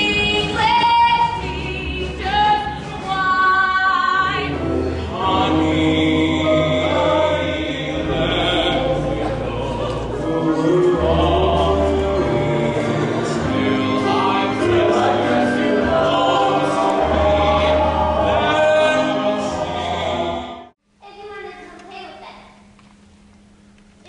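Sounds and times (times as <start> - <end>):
young male voices singing together: 5.1 - 20.7.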